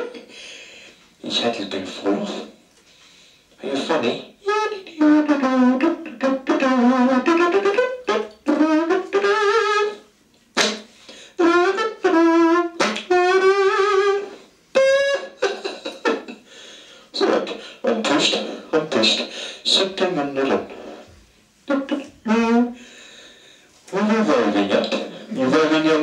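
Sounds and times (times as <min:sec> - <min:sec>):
wordless wavering voice notes: 0:21.7 - 0:22.8.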